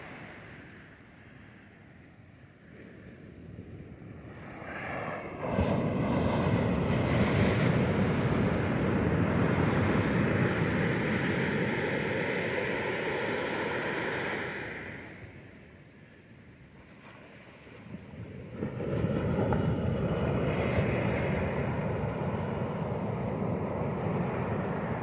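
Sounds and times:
wind buffeting microphone: 3.2 - 15.7, 17.6 - 25.0
surf breaking on sand: 4.3 - 15.4, 16.8 - 25.0.

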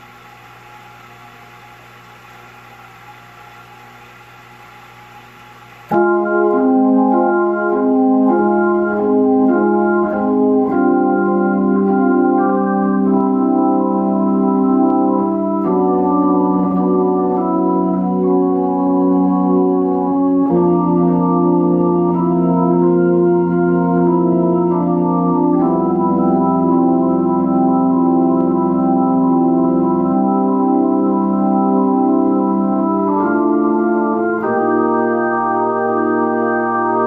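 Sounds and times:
organ chords through rotary speaker: 0.0 - 37.0.

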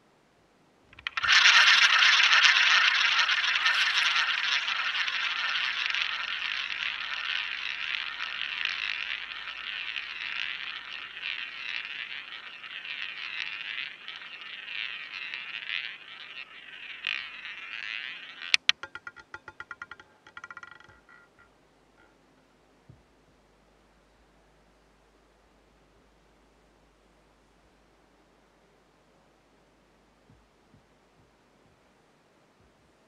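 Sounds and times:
roulette ball clacking and rattling: 0.9 - 22.2
roulette ball rolling: 0.9 - 22.2.

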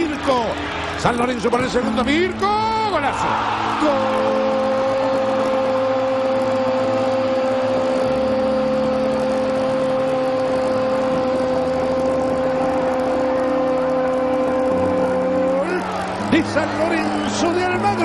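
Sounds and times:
commentator shouting goal: 0.0 - 5.2
stadium crowd noise: 0.0 - 18.0.

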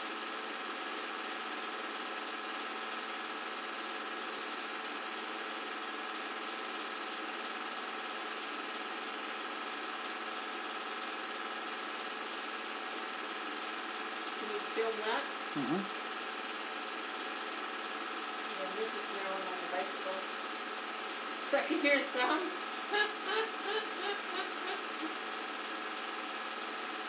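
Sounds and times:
film projector whirring: 0.0 - 27.0
motor tones: 6.4 - 27.0.

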